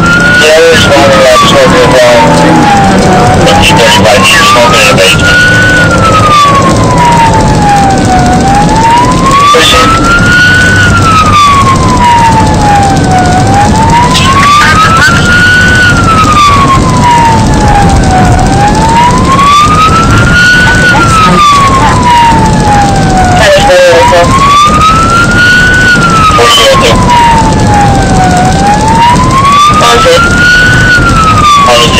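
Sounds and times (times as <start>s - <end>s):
engine and road noise: 0.0s - 31.9s
siren wailing: 0.0s - 31.9s.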